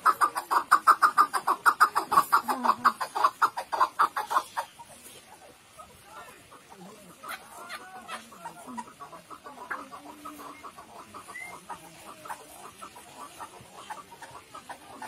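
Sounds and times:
partridge clucking call: 0:00.0 - 0:15.0.

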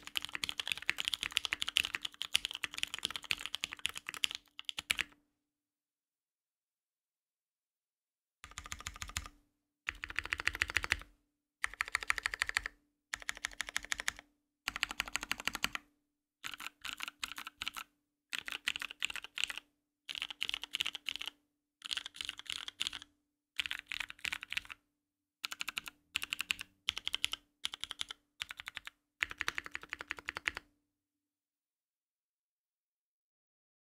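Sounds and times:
mechanical keyboard typing: 0:00.0 - 0:05.2, 0:08.4 - 0:09.3, 0:09.9 - 0:15.8, 0:16.4 - 0:24.8, 0:25.4 - 0:30.7.

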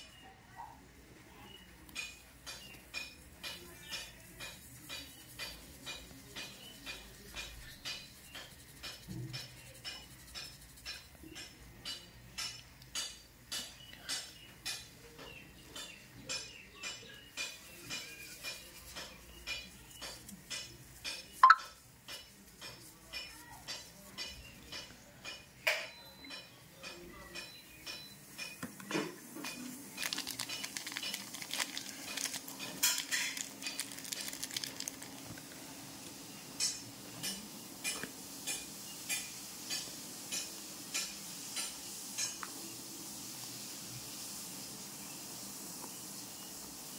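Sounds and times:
fizzing hiss: 0:29.6 - 0:46.9.

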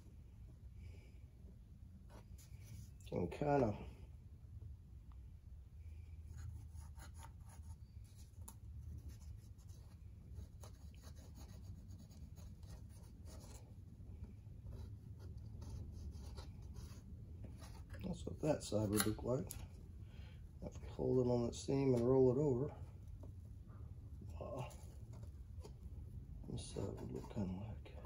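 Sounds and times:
low steady hum: 0:00.0 - 0:28.0
pencil scratching on cardboard: 0:06.3 - 0:18.0.

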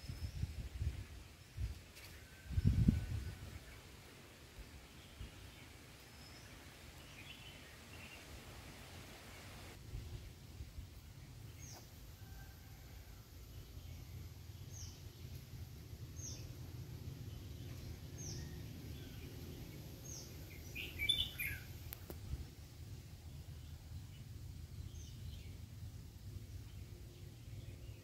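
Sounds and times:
low outdoor rumble: 0:07.4 - 0:28.0
bird chirps: 0:17.4 - 0:21.7.

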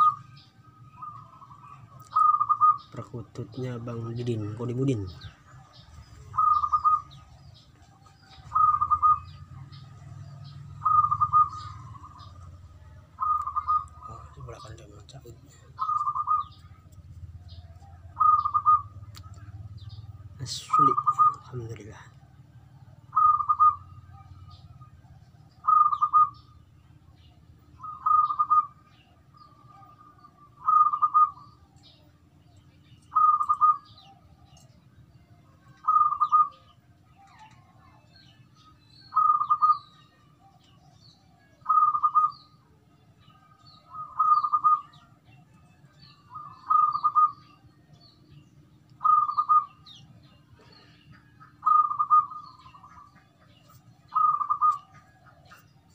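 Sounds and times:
dove cooing: 0:00.0 - 0:32.1, 0:33.0 - 0:47.8, 0:49.0 - 0:55.9.

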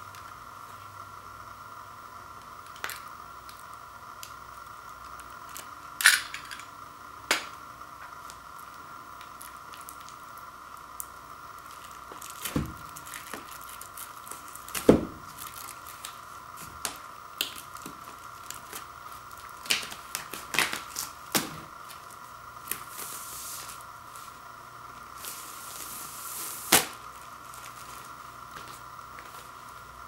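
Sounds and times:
plastic shrink-wrap crinkling: 0:08.2 - 0:10.4, 0:11.0 - 0:30.0
cardboard box knocks: 0:14.8 - 0:15.2.

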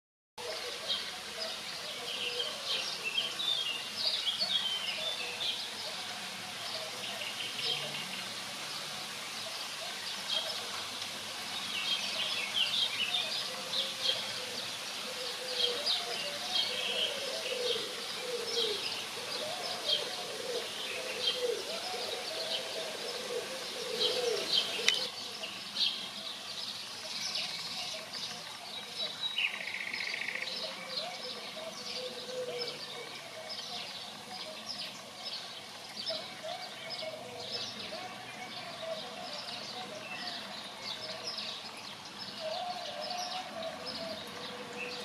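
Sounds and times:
small songbirds chirping: 0:00.4 - 0:45.0.

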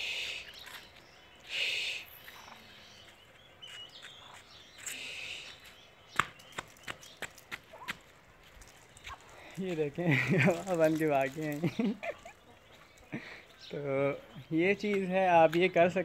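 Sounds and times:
duckling peeping: 0:01.4 - 0:05.8
duck hissing hoarsely: 0:01.5 - 0:02.1.

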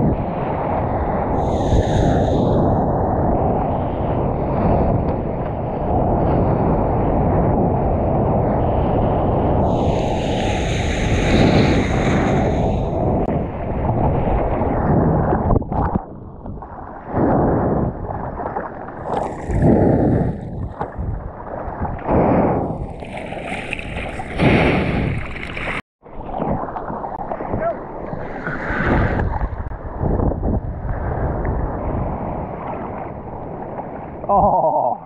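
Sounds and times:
wind buffeting camera: 0:00.0 - 0:34.3
water splashes: 0:15.3 - 0:34.8
water rushing: 0:22.8 - 0:29.8.

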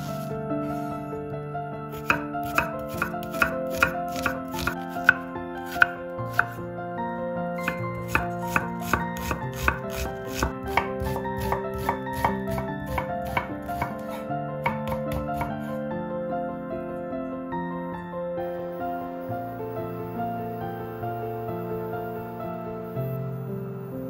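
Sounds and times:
background music: 0:00.0 - 0:24.0
knife chopping on wooden board: 0:02.0 - 0:06.6, 0:07.6 - 0:15.6.

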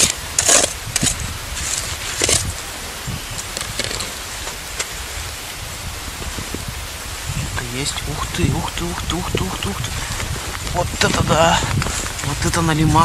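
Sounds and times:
snow and ice crunching: 0:00.0 - 0:05.3, 0:05.9 - 0:13.0
steady low rumble: 0:05.0 - 0:13.0.

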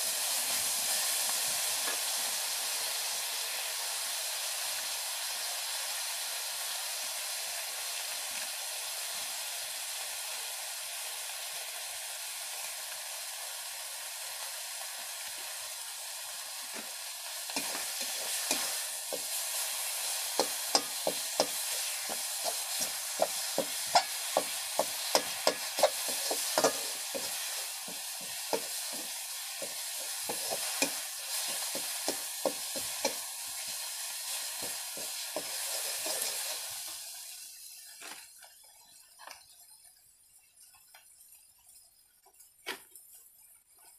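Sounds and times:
food sizzling in a wok: 0:00.0 - 0:43.9
metal spatula scraping a pan: 0:17.5 - 0:36.7.

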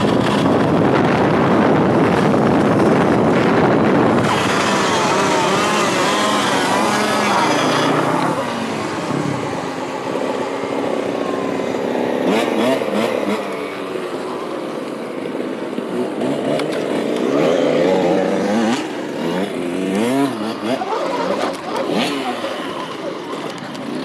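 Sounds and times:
wind on microphone: 0:00.0 - 0:10.2
dirt bike engine revving: 0:00.0 - 0:24.0.

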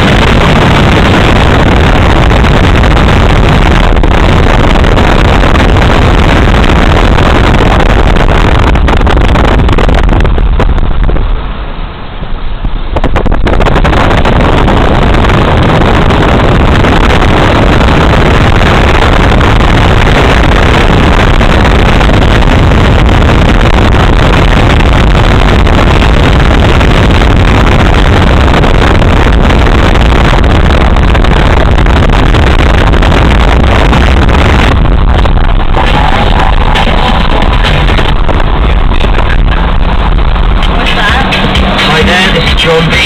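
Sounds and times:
car running: 0:00.0 - 0:43.0
wind and road noise at car window: 0:00.0 - 0:43.0.

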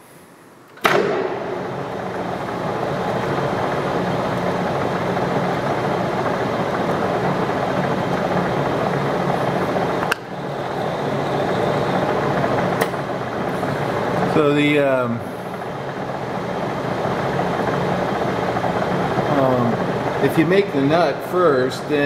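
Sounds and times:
metal lathe running: 0:00.9 - 0:22.0.

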